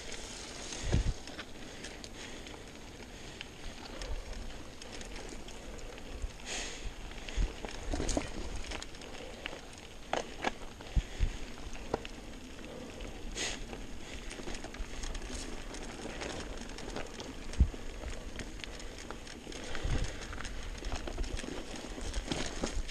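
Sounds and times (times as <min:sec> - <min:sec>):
bike rattling: 0:00.0 - 0:22.9
bike tyres crunching gravel: 0:00.0 - 0:22.9
bike knocking on rocks: 0:07.8 - 0:08.8.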